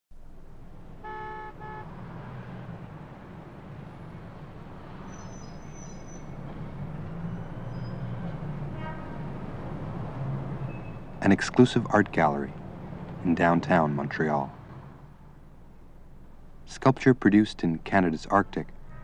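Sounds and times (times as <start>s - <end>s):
street traffic rumbling: 0.1s - 19.0s
car horn honks: 0.8s - 2.6s, 8.8s - 9.5s, 18.2s - 19.0s.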